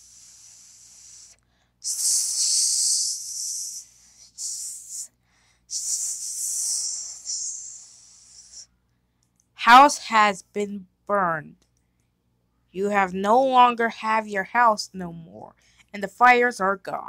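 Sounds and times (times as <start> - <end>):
person hissing through mouth: 0.0 - 8.7.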